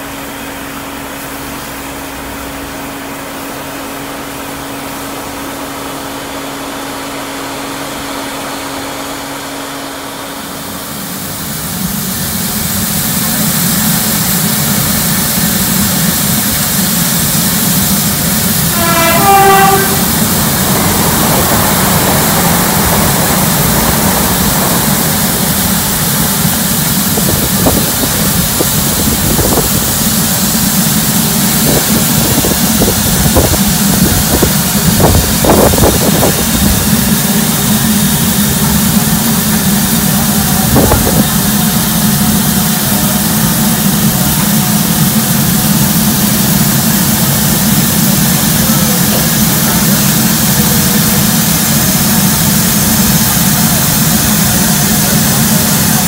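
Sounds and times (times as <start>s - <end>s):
steam locomotive hissing: 0.0s - 56.0s
low rumble: 17.6s - 37.8s.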